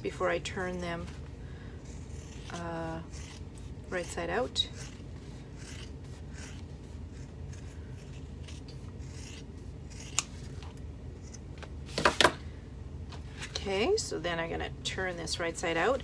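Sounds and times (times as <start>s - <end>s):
scissors snipping fabric: 2.0s - 5.0s, 10.0s - 10.3s.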